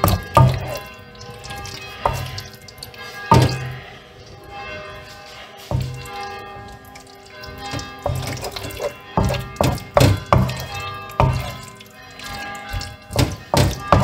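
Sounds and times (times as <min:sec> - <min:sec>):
spatula stirring pasta in a pan: 0:00.0 - 0:00.8, 0:07.0 - 0:14.0.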